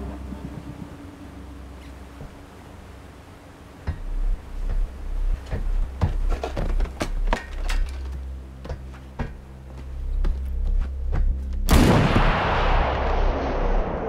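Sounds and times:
deep rumble: 0.0s - 8.5s, 9.4s - 14.0s
boat engines droning: 0.0s - 11.1s
sharp knocks and thuds: 3.8s - 7.9s, 8.6s - 9.4s.

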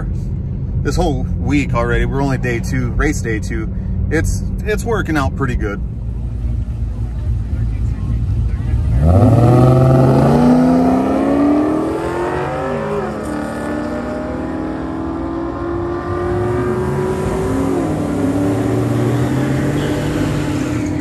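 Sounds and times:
drag racing car accelerating: 7.6s - 21.0s.

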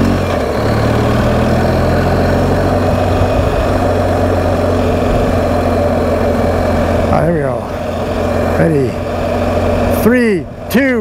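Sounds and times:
motorcycle engine cruising: 0.0s - 11.0s
road and wind noise: 0.0s - 11.0s.

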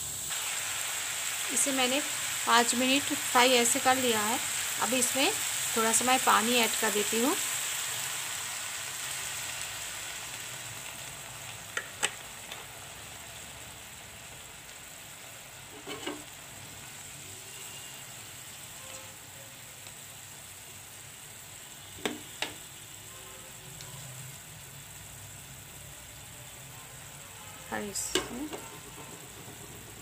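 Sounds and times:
curry sizzling in a frying pan: 0.0s - 30.0s
spoon knocking and scraping pan: 15.7s - 16.3s, 22.0s - 22.6s, 28.1s - 30.0s.

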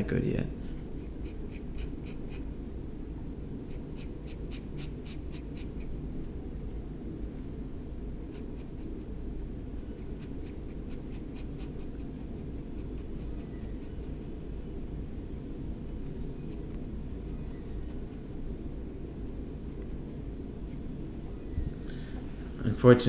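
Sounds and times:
steady low hum: 0.0s - 23.0s
pen nib scratching on paper: 0.8s - 2.5s, 3.6s - 5.9s, 8.2s - 14.4s, 15.8s - 20.8s.

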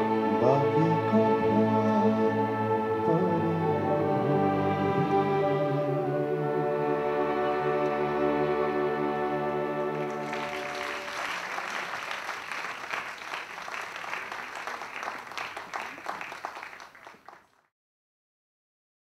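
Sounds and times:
orchestra holding a chord: 0.0s - 11.8s
audience applause: 9.9s - 17.6s.

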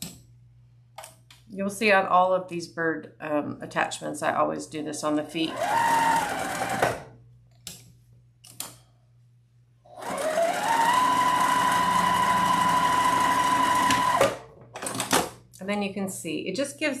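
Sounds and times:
sewing machine stitching: 5.4s - 7.1s, 9.9s - 14.4s.

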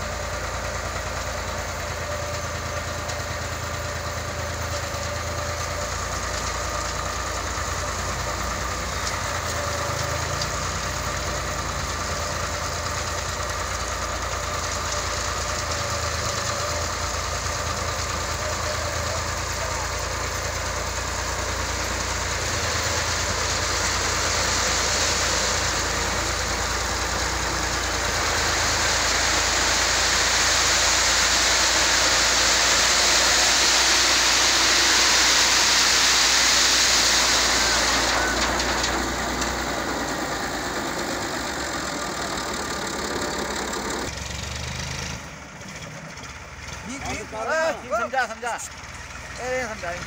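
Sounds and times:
tractor diesel engine running: 0.0s - 50.0s
gravel sliding from trailer: 21.6s - 44.1s.

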